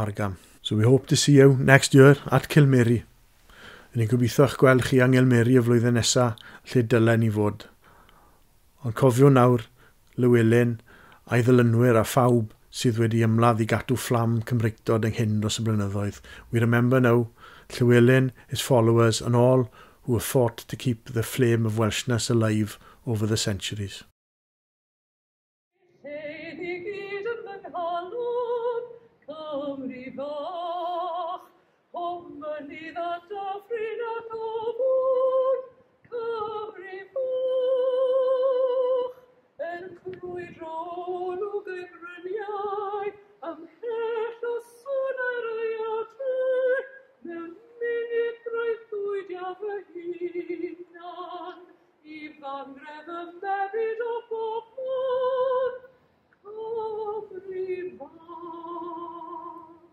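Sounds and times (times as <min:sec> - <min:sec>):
woman singing unaccompanied: 0:25.8 - 0:59.9.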